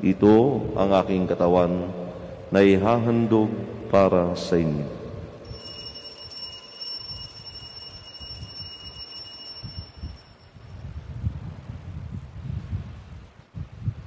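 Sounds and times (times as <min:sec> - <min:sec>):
altar bells ringing: 0:05.4 - 0:10.9.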